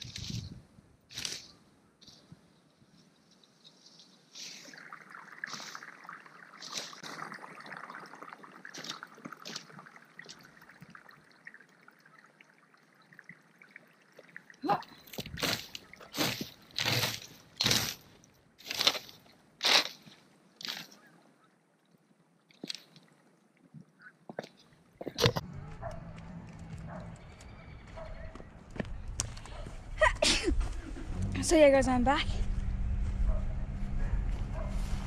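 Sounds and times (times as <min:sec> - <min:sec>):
rake scraping through dry leaves: 0:15.4 - 0:21.0.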